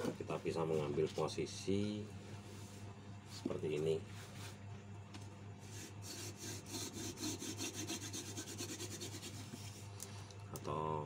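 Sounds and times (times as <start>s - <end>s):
wooden spindle rasping on fireboard: 5.6s - 9.9s.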